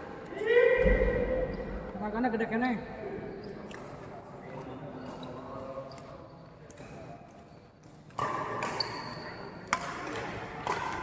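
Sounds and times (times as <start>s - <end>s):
badminton racket hitting shuttlecock: 9.7s - 11.0s.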